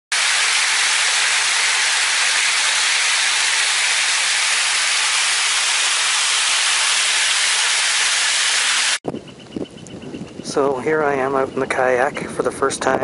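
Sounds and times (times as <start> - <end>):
stream cascading over rocks: 0.1 - 9.0.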